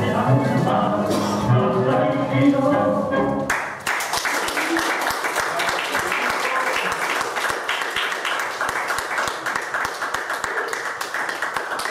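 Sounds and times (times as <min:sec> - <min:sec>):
audience applauding: 0:03.5 - 0:11.9.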